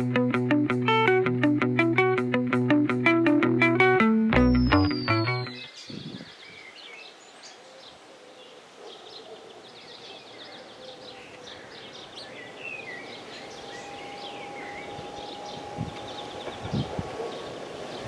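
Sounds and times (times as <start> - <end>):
birds singing and chirping: 4.4 - 18.0
outdoor background noise: 5.6 - 18.0.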